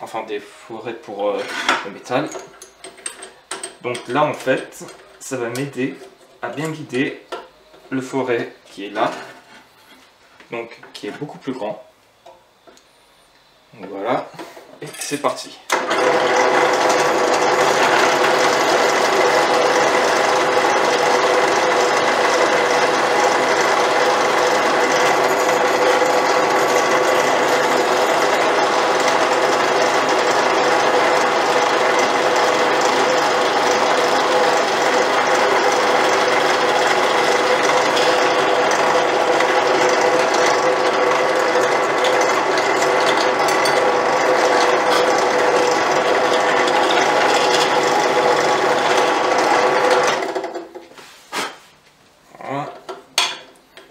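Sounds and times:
drill press boring into wood: 15.7s - 50.8s.

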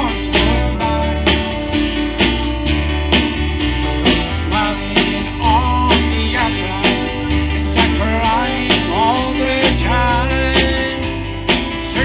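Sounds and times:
acoustic guitar strumming: 0.0s - 12.0s
gospel band playing: 0.0s - 12.0s.

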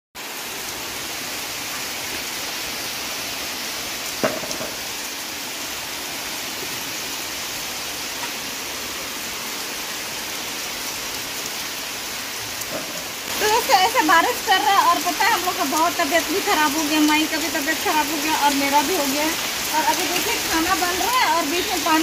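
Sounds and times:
rain splashing on puddles: 0.2s - 22.0s
sharp knock: 4.2s - 4.8s.

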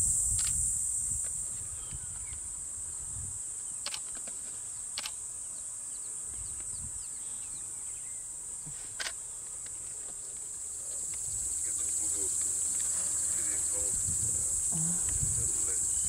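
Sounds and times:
high-pitched insect chorus: 0.0s - 16.0s
sharp clicks: 3.8s - 4.3s, 5.0s - 5.2s.

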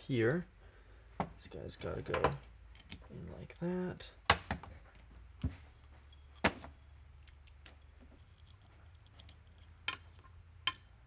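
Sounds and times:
sharp metal clicks: 8.4s - 11.0s.

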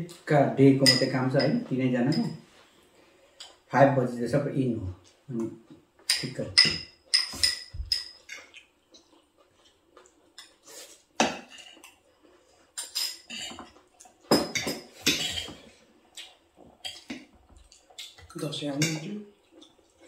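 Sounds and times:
cutlery clinking on plates: 6.0s - 8.6s, 12.8s - 15.6s.

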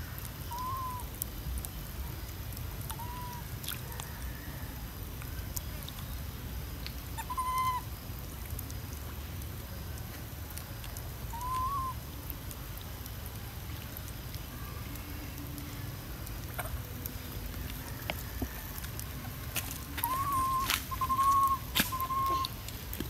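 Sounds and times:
low outdoor rumble: 0.0s - 23.0s
whistle-like calls: 0.5s - 1.1s, 7.2s - 7.8s, 11.3s - 12.0s, 19.9s - 22.6s.

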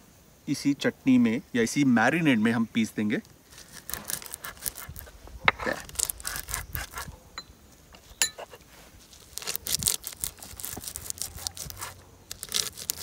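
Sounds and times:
stone grinding on stone: 3.9s - 7.1s.

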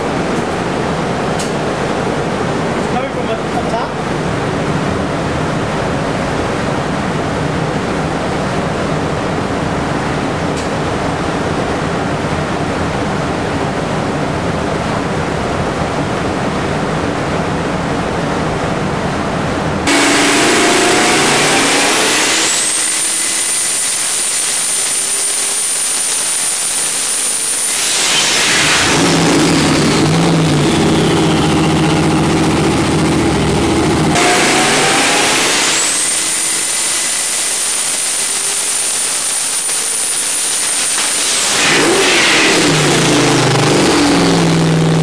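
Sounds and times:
engine running hard: 0.0s - 45.0s
high turbo whistle: 19.9s - 33.2s, 34.1s - 44.5s.

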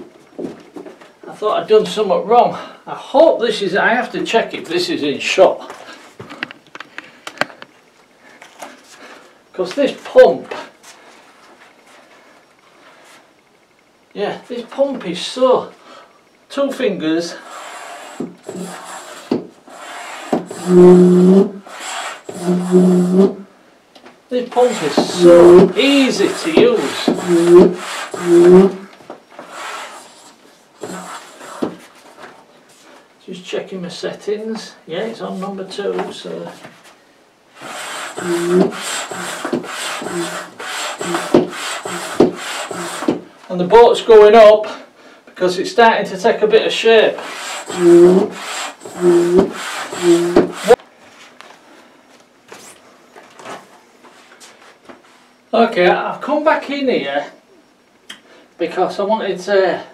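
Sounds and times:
hand pump air strokes: 17.4s - 23.3s, 24.6s - 28.8s, 29.4s - 31.8s, 37.6s - 43.2s, 47.2s - 50.8s.

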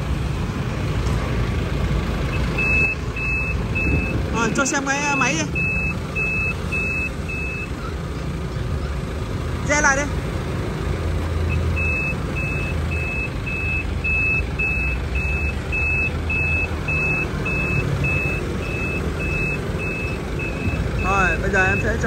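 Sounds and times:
diesel engine running: 0.0s - 22.0s
reversing alarm beeping: 2.3s - 7.8s, 11.5s - 22.0s.

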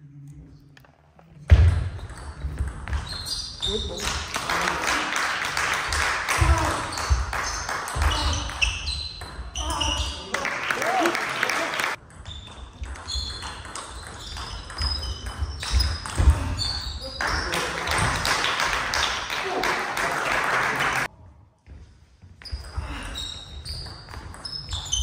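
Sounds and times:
voices in a hall: 8.0s - 12.0s, 15.9s - 21.6s
table tennis ball pinging: 12.0s - 16.3s.

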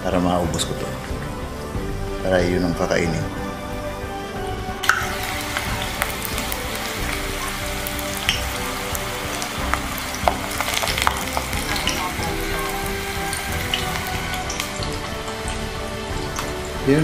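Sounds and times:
food deep-frying in oil: 4.8s - 17.0s.

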